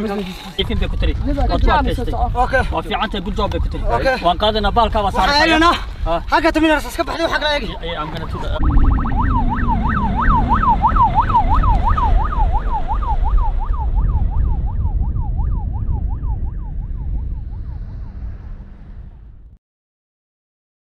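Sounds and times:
ambulance siren yelping: 0.6 - 4.5, 8.6 - 18.4
low rumble: 7.8 - 19.6.

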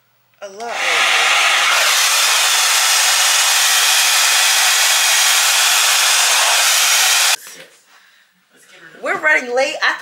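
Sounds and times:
hair dryer blowing: 0.6 - 7.4.

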